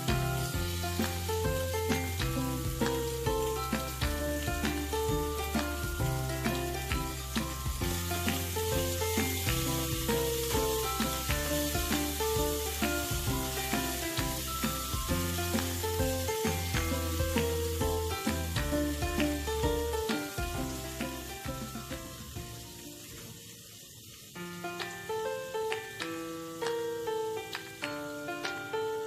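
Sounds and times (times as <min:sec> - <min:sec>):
background music with bass: 0:00.0 - 0:22.2
fish sizzling in frying pan: 0:00.0 - 0:29.0.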